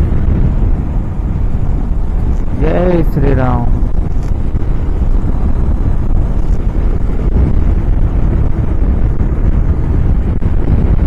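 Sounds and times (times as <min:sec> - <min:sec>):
road and engine rumble: 0:00.0 - 0:11.0
wind buffeting microphone: 0:00.0 - 0:11.0.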